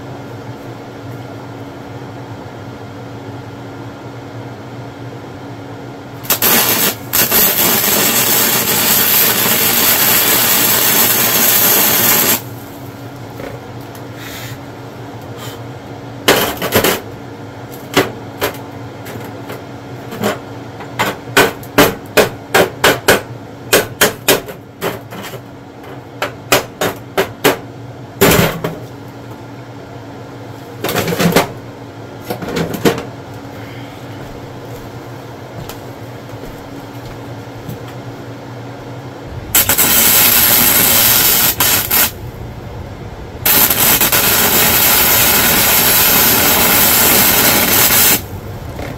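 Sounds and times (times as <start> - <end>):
welder arc buzzing: 6.2 - 13.3, 39.2 - 48.9.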